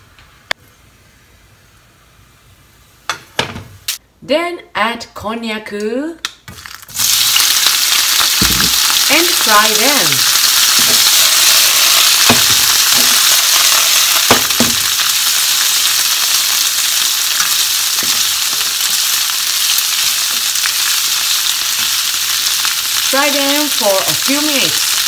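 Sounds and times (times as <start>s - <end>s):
food sizzling in frying pan: 6.5s - 25.0s.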